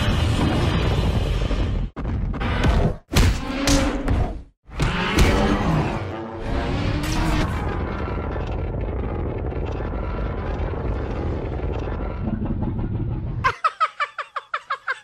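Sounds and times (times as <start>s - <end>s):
dense rumbling rush: 6.6s - 13.5s.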